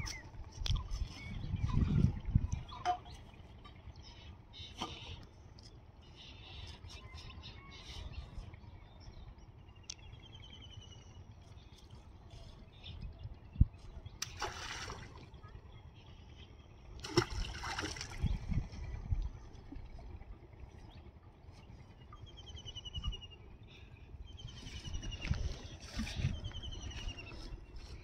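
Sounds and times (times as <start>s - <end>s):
water splashing: 14.2s - 15.3s, 17.0s - 18.4s
low rumble: 15.2s - 28.0s.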